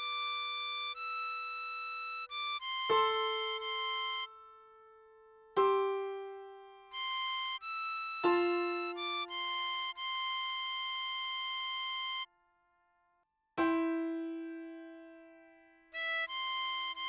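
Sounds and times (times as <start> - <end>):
harmonica melody: 0.0 - 4.9, 5.5 - 12.3, 15.9 - 17.0
piano chords: 2.9 - 7.5, 8.2 - 10.0.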